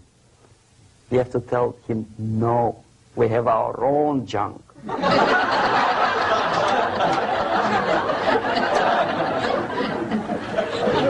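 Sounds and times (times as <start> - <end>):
audience laughing: 4.8 - 11.0.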